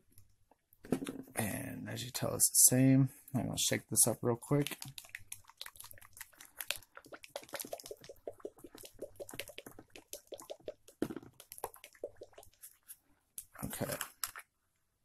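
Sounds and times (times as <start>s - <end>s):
liquid sloshing in shaken bottle: 4.6s - 12.9s.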